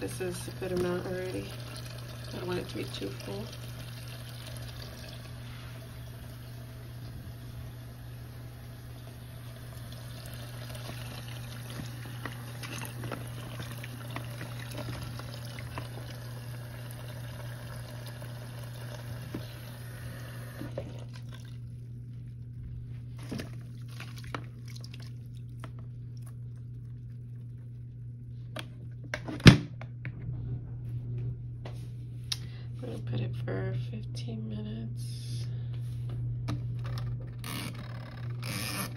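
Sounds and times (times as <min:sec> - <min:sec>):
water running from hose: 0:00.0 - 0:21.7.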